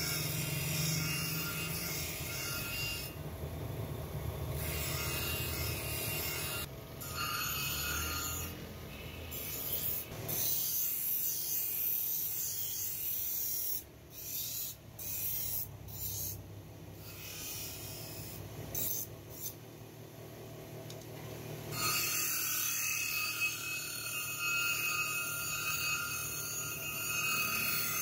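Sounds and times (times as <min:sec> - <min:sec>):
steel grinding on stone: 0:04.6 - 0:08.6, 0:21.7 - 0:28.0.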